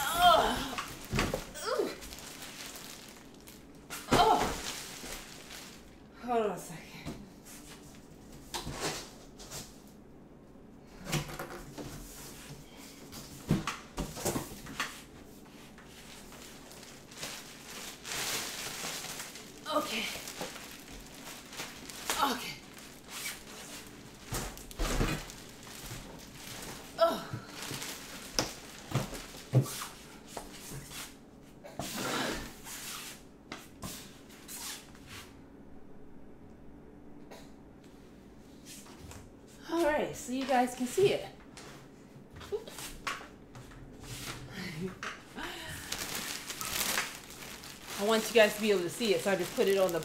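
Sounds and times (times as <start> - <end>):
knocks and clunks of unpacking: 0.2 - 3.1, 24.2 - 29.8.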